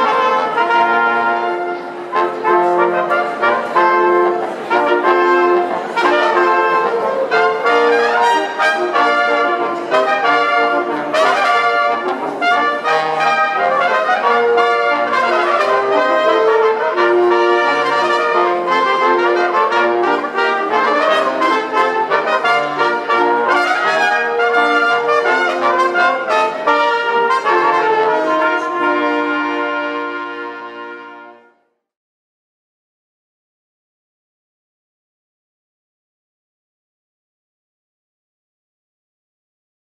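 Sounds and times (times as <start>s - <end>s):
brass ensemble playing sacred music: 0.0s - 31.6s.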